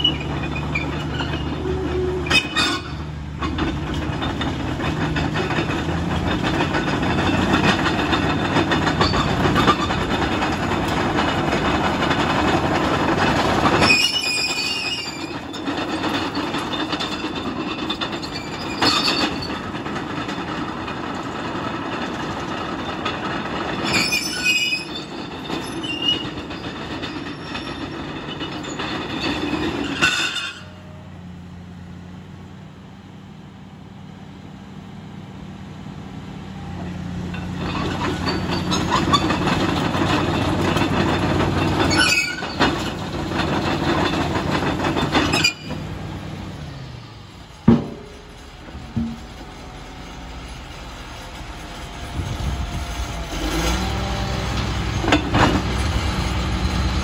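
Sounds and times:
high-pitched track squeals: 0:00.0 - 0:03.1
steel tracks clanking: 0:00.0 - 0:32.2, 0:36.3 - 0:57.0
diesel engine under load: 0:00.0 - 0:57.0.

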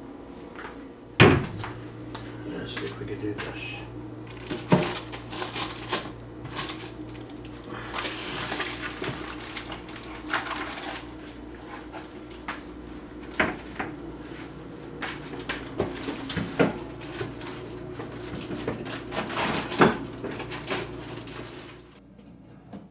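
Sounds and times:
faint steady hum: 0:00.0 - 0:22.9.

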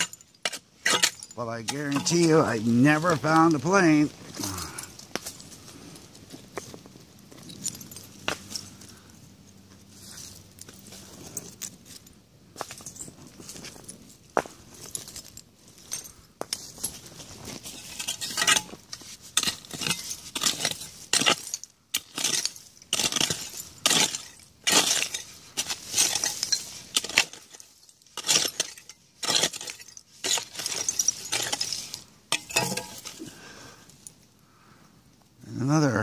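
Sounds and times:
hand tool scraping soil: 0:00.0 - 0:04.8, 0:16.6 - 0:33.3
buried glass clinking: 0:00.0 - 0:05.6, 0:17.8 - 0:33.2.

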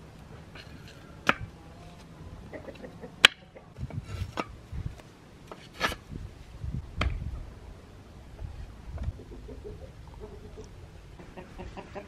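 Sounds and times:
light scraping: 0:00.3 - 0:01.2, 0:03.8 - 0:06.2.

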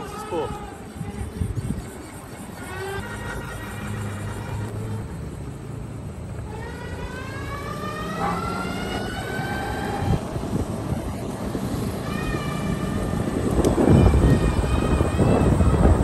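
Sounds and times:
tyres rumbling and wind: 0:00.0 - 0:16.0
electric motor whining: 0:06.2 - 0:16.0.

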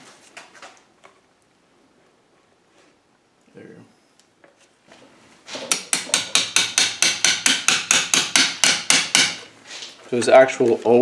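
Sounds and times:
hammer tapping metal punch: 0:05.7 - 0:09.5.

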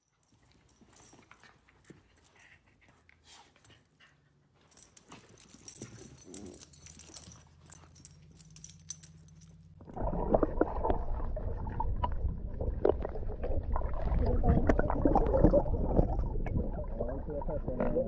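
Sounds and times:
muffled water sloshing and gurgling: 0:09.8 - 0:18.0.

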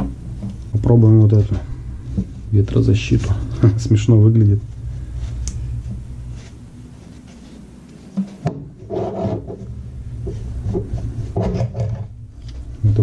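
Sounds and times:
hands rubbing furry windscreen: 0:04.6 - 0:08.4.

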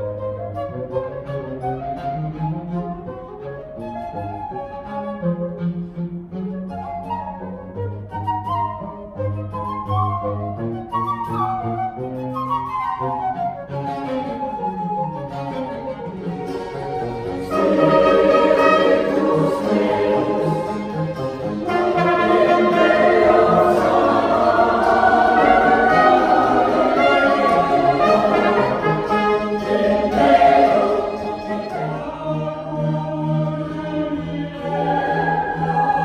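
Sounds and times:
strings and flutes ensemble: 0:00.0 - 0:36.0
mixed choir singing: 0:16.4 - 0:36.0.

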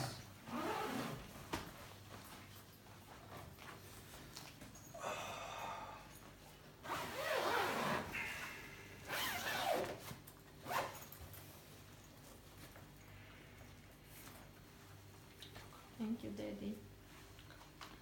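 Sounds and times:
zipper being pulled: 0:00.4 - 0:01.3, 0:06.8 - 0:08.3, 0:09.0 - 0:11.1.

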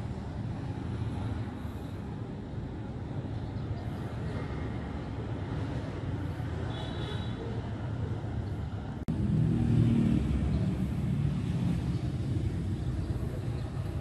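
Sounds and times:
road traffic rumble: 0:00.0 - 0:14.0.

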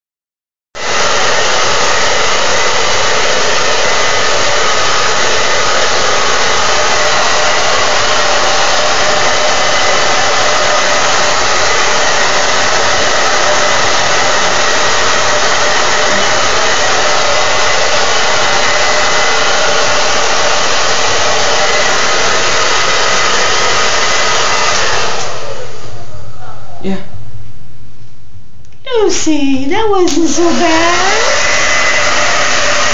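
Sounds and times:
blow dryer running: 0:00.8 - 0:26.2, 0:29.7 - 0:32.9.

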